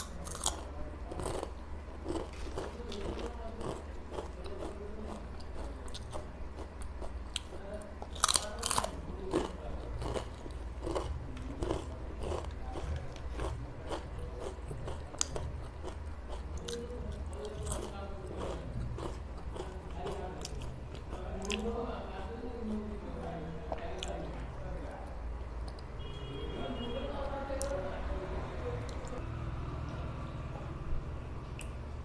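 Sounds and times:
crunching potato chips: 0.0 - 21.7.

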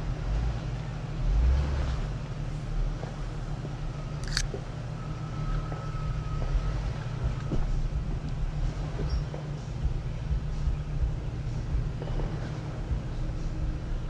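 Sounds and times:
vehicle engine low rumble: 0.0 - 14.0.

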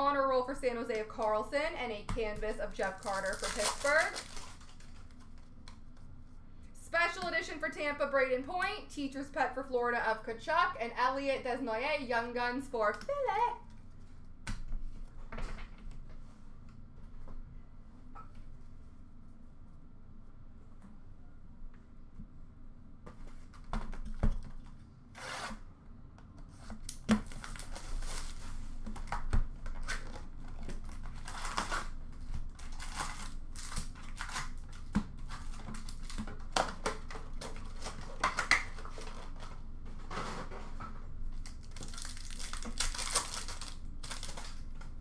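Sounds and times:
foil wrappers tearing and crinkling: 2.8 - 5.4, 26.8 - 39.5, 41.4 - 45.0.

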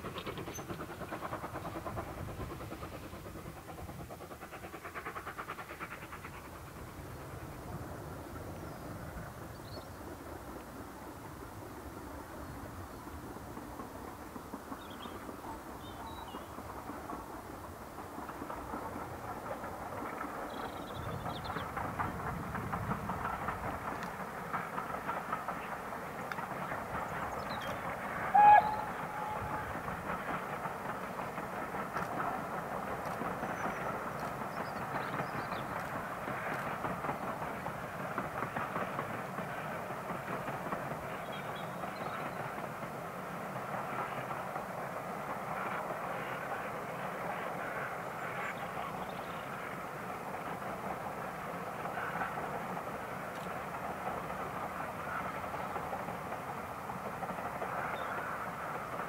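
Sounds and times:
distant steam train running: 0.0 - 59.0
steam train hoot: 27.5 - 30.3.

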